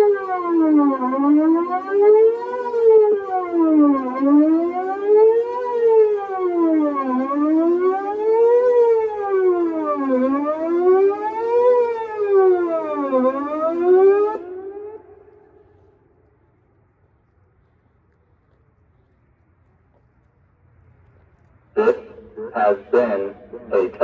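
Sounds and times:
warning siren wailing: 0.0 - 16.6, 21.8 - 24.0.

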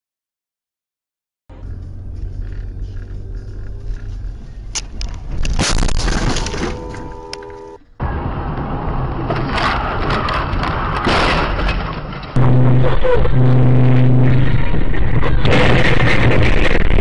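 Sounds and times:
road noise: 1.5 - 17.0
car collision crunching: 5.3 - 7.6
car horn blaring: 6.4 - 7.9, 12.4 - 14.4.

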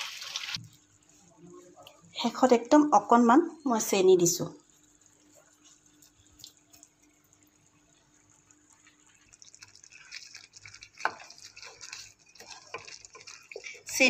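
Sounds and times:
wooden spatula stirring thick gravy: 8.7 - 14.0.

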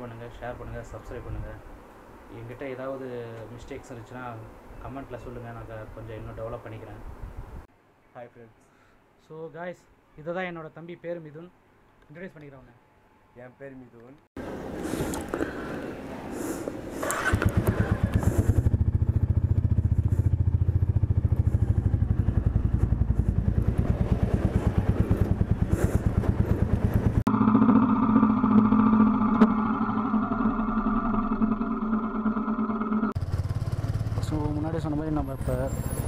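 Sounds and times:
motorcycle engine running: 17.0 - 36.0.

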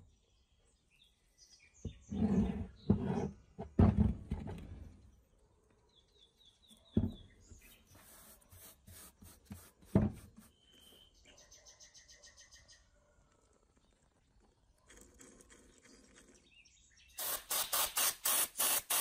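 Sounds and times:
birds chirping: 4.8 - 8.7, 10.2 - 14.5.

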